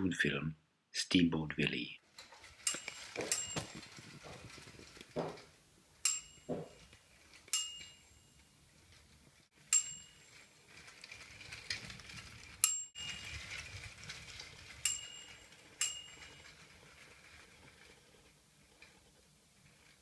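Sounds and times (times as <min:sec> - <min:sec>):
small bell dinging: 0:06.0 - 0:06.9, 0:07.5 - 0:08.4, 0:09.7 - 0:10.4, 0:14.8 - 0:16.5.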